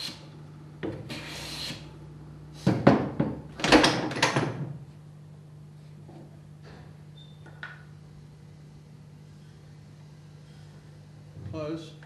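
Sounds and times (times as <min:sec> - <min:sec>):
hand plane shaving hiss: 0:01.1 - 0:01.8.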